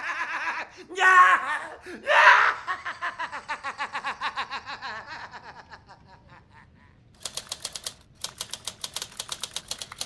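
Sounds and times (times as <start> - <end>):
typewriter keys clacking: 7.2 - 10.0.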